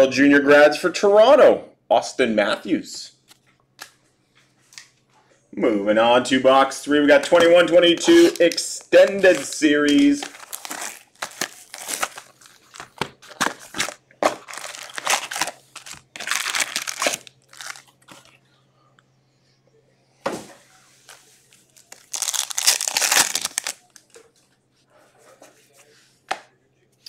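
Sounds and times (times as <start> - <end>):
cards being handled: 7.3 - 18.3
foil wrappers crinkling: 7.4 - 18.4, 21.7 - 24.2.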